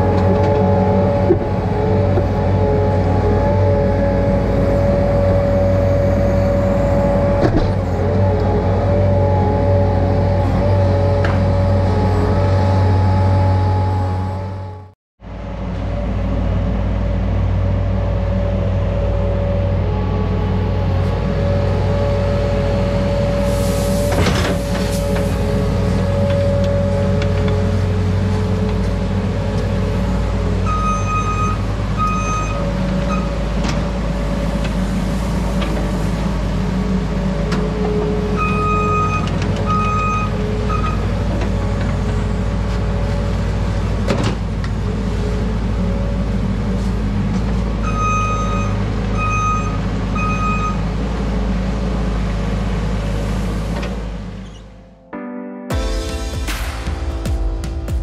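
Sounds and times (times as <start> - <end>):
reversing alarm beeping: 30.6 - 33.3, 38.4 - 41.1, 47.8 - 50.8.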